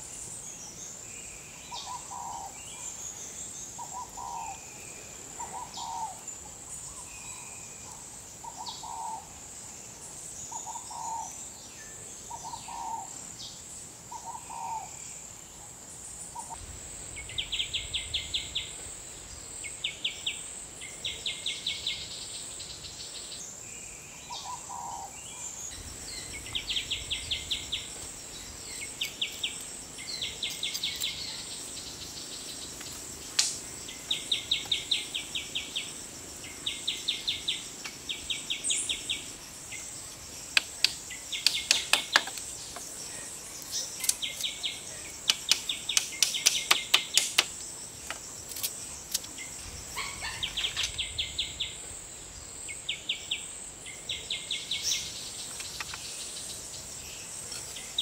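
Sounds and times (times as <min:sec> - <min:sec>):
high insect drone: 0:00.0 - 0:58.0
birds calling: 0:03.7 - 0:04.7, 0:05.4 - 0:07.4, 0:10.4 - 0:11.4, 0:12.2 - 0:13.1, 0:24.2 - 0:58.0.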